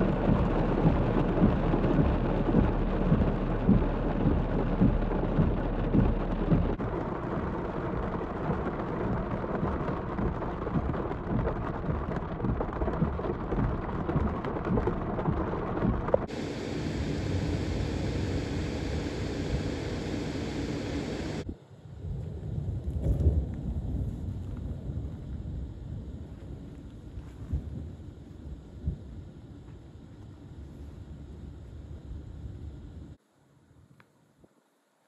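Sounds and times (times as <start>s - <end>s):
rain and hail pelting vehicle roof: 0.0s - 17.2s
hiss of rain: 0.0s - 33.2s.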